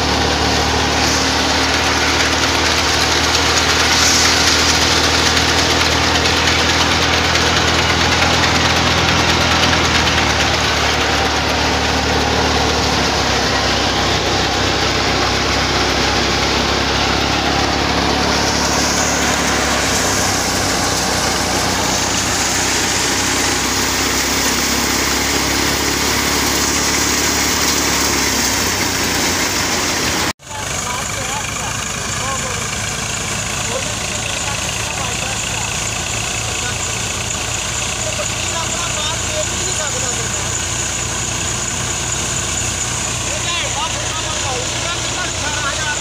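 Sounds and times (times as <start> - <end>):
thresher machine running: 0.0 - 46.0
tractor engine under load: 0.0 - 46.0
rushing hiss of blown chaff: 0.9 - 6.8.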